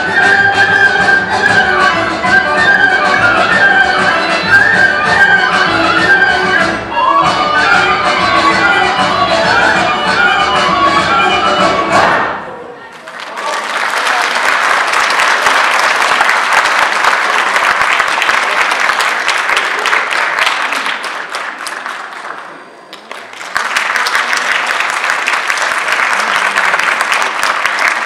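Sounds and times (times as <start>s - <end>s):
audience applauding: 12.9s - 28.0s.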